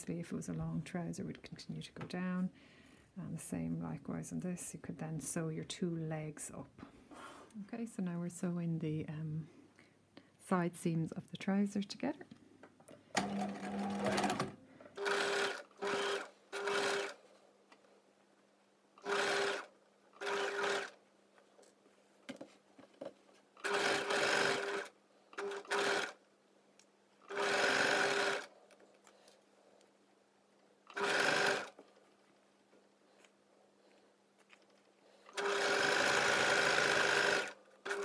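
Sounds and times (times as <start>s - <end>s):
sewing machine stitching: 13.1s - 17.2s, 19.0s - 21.0s, 23.6s - 26.2s, 27.2s - 28.6s, 30.9s - 31.8s, 35.3s - 38.0s.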